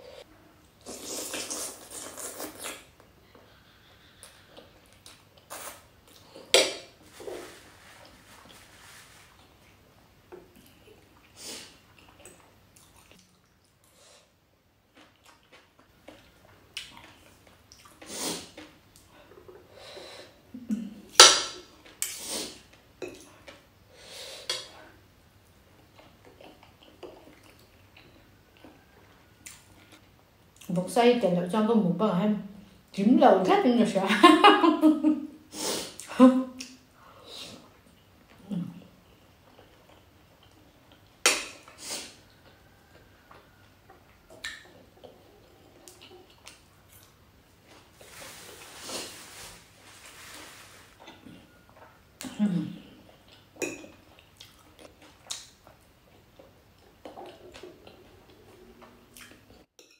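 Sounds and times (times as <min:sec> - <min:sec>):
mouth eating sounds: 0:00.8 - 0:06.5, 0:37.6 - 0:48.4, 0:51.0 - 0:59.6.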